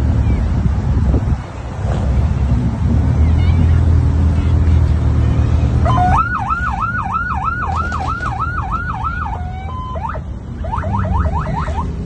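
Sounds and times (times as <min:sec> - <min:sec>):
car engines rumbling: 0:00.0 - 0:12.0
electronic siren yelping: 0:05.8 - 0:12.0.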